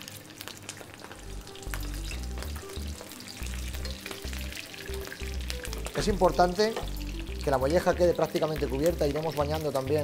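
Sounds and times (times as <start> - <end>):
meat sizzling in butter: 0.0 - 10.0.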